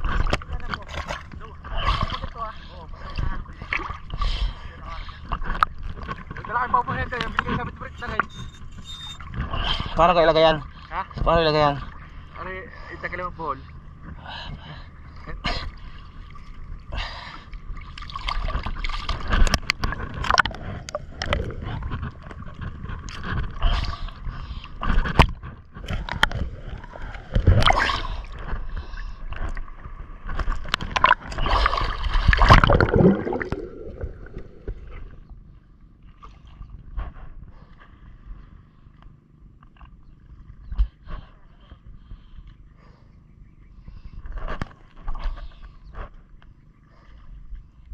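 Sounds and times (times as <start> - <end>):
water sloshing around boat: 0.0 - 47.9
splashes and knocks: 29.4 - 35.0.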